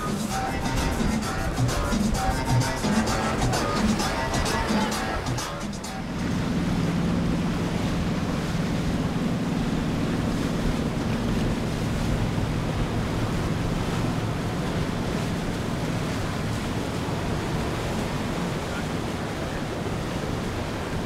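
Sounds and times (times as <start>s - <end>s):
wind noise on microphone: 0.0s - 9.3s
boat engine drone: 0.0s - 21.0s
water rushing from wake: 0.0s - 21.0s.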